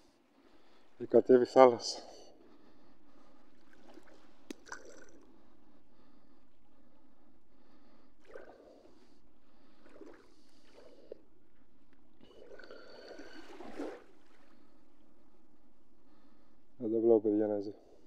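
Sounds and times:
sea water sloshing and gurgling: 2.6s - 7.0s, 7.6s - 16.3s.

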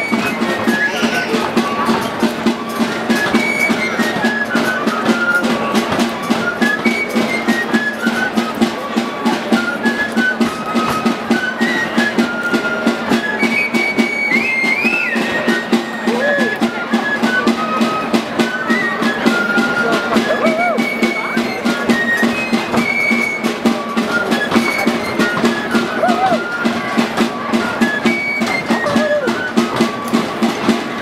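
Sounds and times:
fast drum beat: 0.0s - 4.5s, 15.0s - 31.0s.

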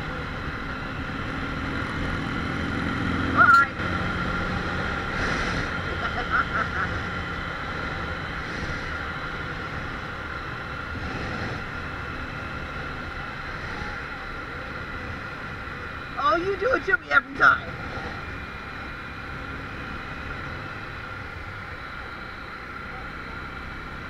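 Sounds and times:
motorcycle engine running: 0.0s - 24.0s
wind and road noise: 0.0s - 24.0s.

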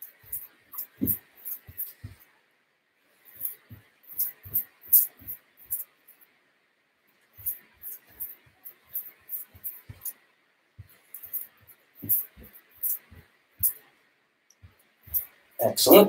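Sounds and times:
sneakered footsteps on carpet: 0.0s - 2.4s, 3.1s - 5.9s, 7.2s - 14.0s.

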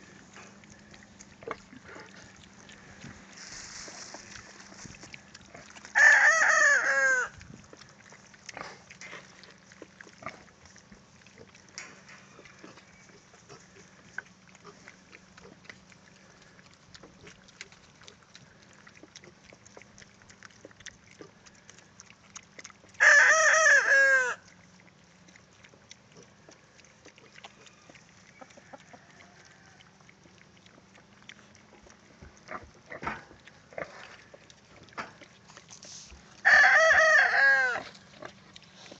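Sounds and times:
rooster crowing: 6.0s - 7.3s, 23.0s - 24.4s, 36.4s - 37.9s.

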